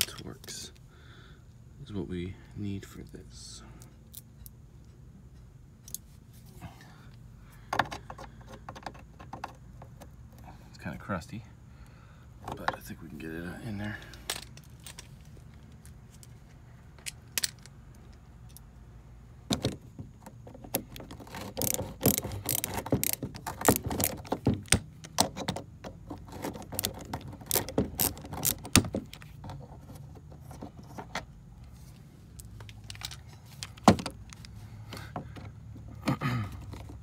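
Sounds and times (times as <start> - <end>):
ratcheting screwdriver clicking: 21.3 - 25.2.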